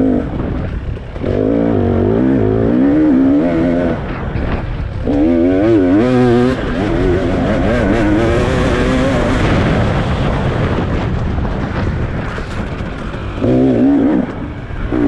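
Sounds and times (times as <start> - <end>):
racing engine revving: 1.2 - 10.6, 13.3 - 15.0.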